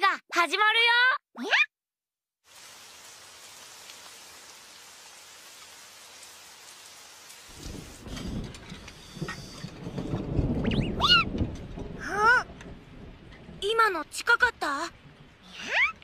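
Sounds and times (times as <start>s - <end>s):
steady rain falling: 2.4s - 16.0s
low thunder rumble: 7.5s - 16.0s.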